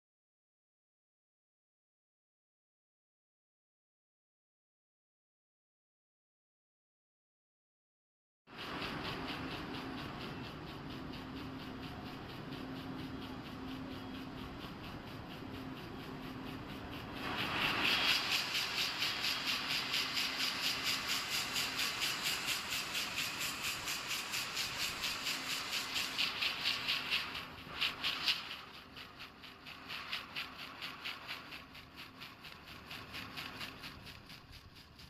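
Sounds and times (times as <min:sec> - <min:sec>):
loom machine clatter with hiss: 0:08.5 - 0:35.0.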